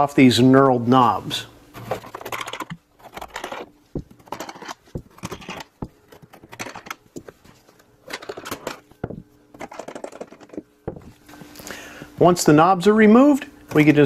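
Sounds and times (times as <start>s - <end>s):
scraping and handling noise: 1.2s - 12.4s.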